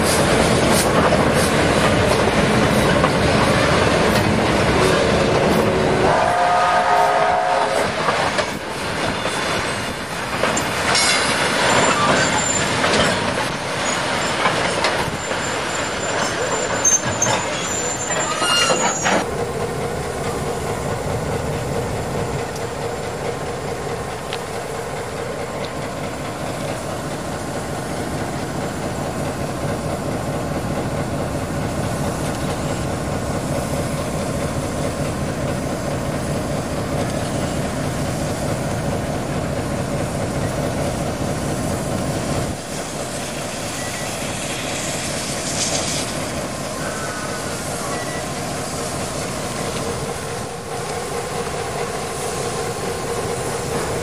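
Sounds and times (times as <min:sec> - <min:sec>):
steam hiss: 0:00.0 - 0:54.0
diesel locomotive idling: 0:18.9 - 0:54.0.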